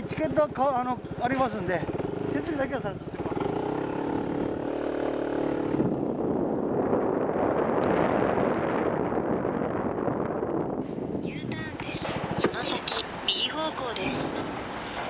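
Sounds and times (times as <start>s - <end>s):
motorcycle engine running: 0.0s - 7.8s
wind rushing over microphone: 3.4s - 15.0s.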